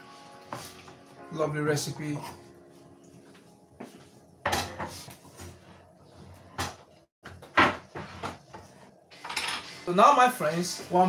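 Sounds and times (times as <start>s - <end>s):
cupboard doors opening and shutting: 6.4s - 8.6s.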